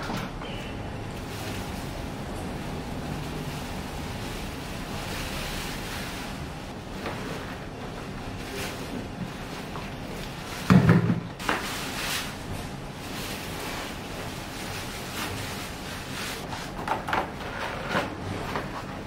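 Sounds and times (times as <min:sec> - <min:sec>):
plastic bag rustling: 0:01.0 - 0:16.8
rubbish thudding into bag: 0:10.5 - 0:12.4.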